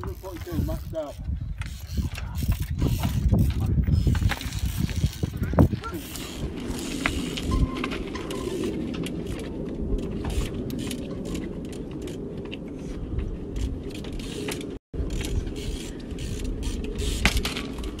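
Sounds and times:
bike drivetrain ticking: 0.0s - 18.0s
steady low rumble: 4.6s - 18.0s.

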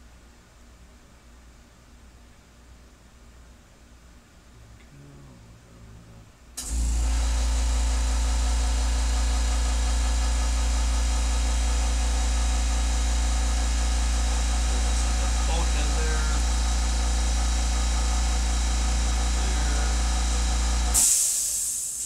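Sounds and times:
machine humming with hiss: 6.1s - 22.0s.

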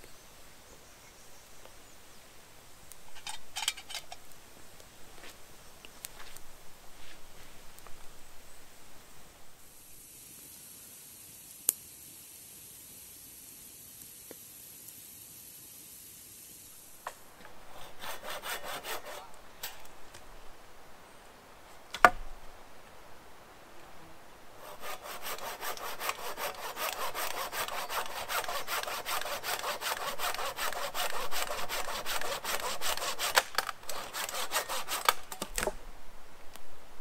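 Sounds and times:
hand saw cutting wood: 17.4s - 19.4s, 24.6s - 35.5s.

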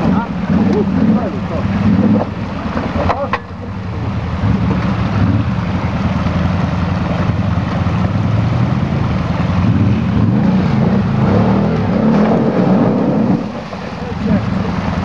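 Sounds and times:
quad engine running under load: 0.0s - 15.0s.

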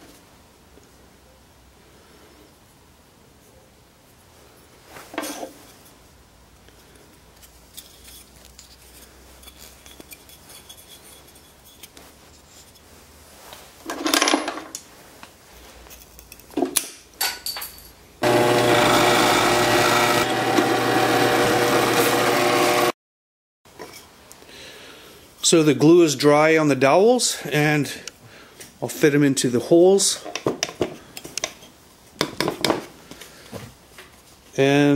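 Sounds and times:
drill press boring wood: 18.2s - 22.9s.

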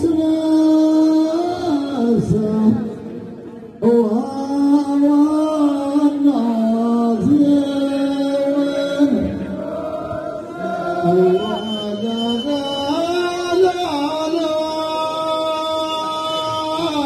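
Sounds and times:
men chanting in unison: 4.9s - 11.8s.

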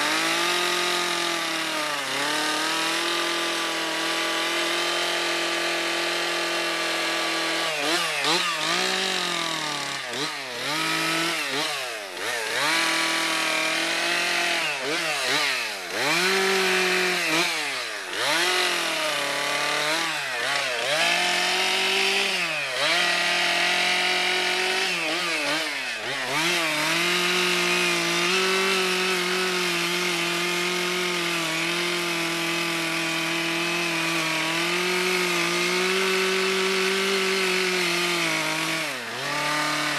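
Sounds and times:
chainsaw cutting log: 0.0s - 39.9s.

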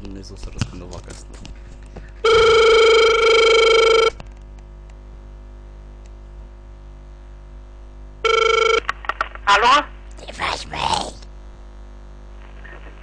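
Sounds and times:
telephone ringback tone: 2.2s - 4.2s, 8.2s - 8.8s.

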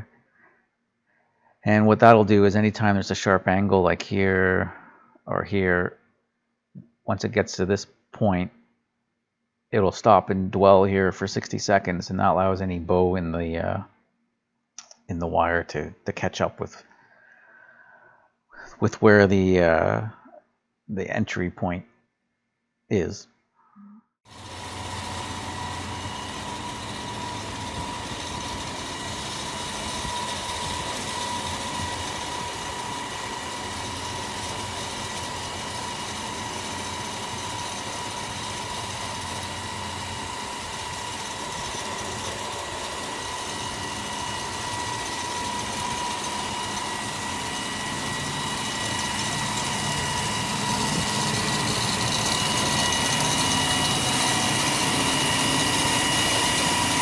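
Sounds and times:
wire stone saw cutting: 24.3s - 57.0s.

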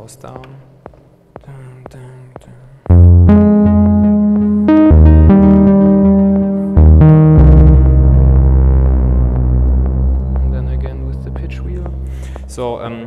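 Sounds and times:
deep synthesizer notes: 2.9s - 13.0s.

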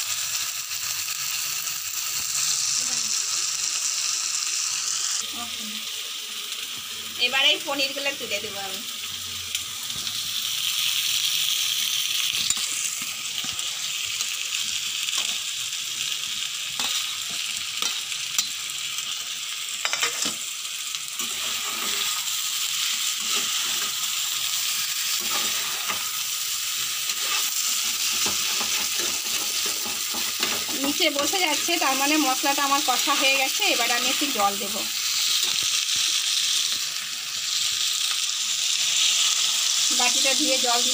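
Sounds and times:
food sizzling in a pan: 0.0s - 40.9s
steel spatula scraping a pan: 16.8s - 18.6s, 19.8s - 20.4s, 21.2s - 26.3s, 27.0s - 31.8s.

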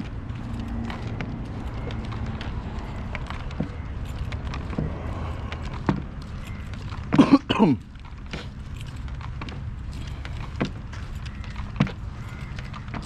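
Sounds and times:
person coughing: 7.1s - 7.8s.

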